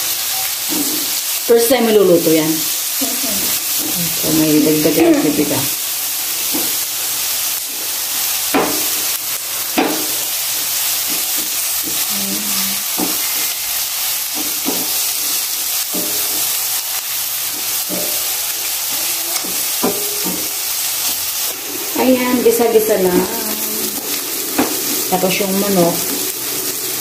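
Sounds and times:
onion and garlic sizzling in oil: 0:00.0 - 0:27.0
spatula scraping and knocking pan: 0:12.9 - 0:16.6, 0:17.5 - 0:27.0.

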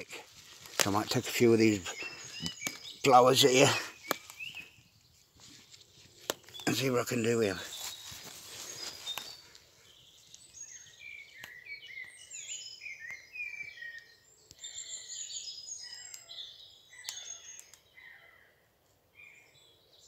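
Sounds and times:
songbirds singing: 0:00.0 - 0:20.0.

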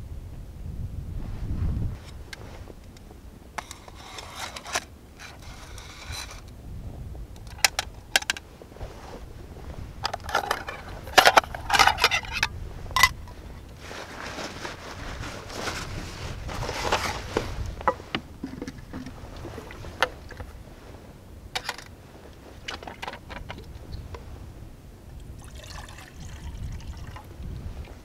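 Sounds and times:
crunching handling noises: 0:02.0 - 0:06.6, 0:10.0 - 0:24.3.

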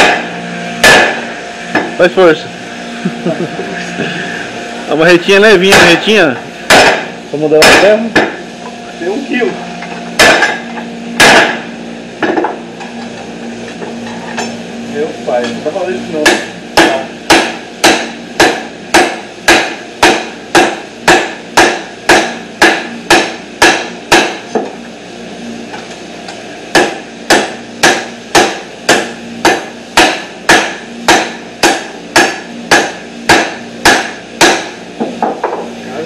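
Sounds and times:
hammer striking steel bar: 0:00.0 - 0:01.9, 0:05.7 - 0:06.1, 0:06.7 - 0:08.3, 0:10.2 - 0:10.6, 0:11.2 - 0:11.6, 0:16.2 - 0:24.4, 0:26.7 - 0:35.6.

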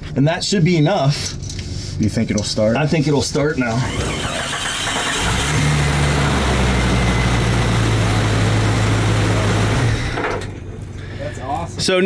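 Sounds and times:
car engine cranking and idling: 0:03.6 - 0:11.1.

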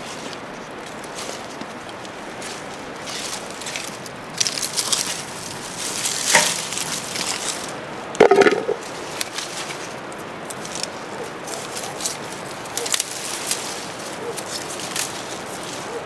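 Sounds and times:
vines and leaves rustling: 0:00.0 - 0:16.0
cucumbers clunking into metal bowl: 0:06.3 - 0:06.6, 0:08.2 - 0:08.8.

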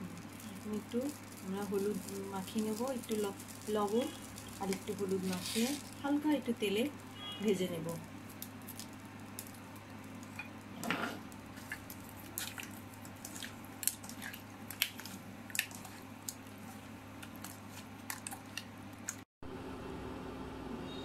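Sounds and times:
hands squishing wet fish: 0:11.3 - 0:19.2.

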